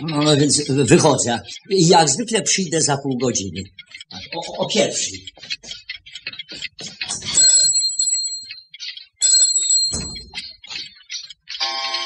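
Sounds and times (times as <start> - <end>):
shop door bell ringing: 7.3 - 10.7, 11.5 - 12.0.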